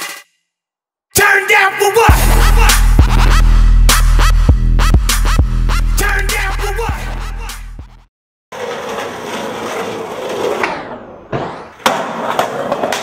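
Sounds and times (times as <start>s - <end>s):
hip-hop music: 1.1s - 8.1s
skateboard rolling on concrete: 8.5s - 13.0s
skateboard landing hard: 10.0s - 13.0s.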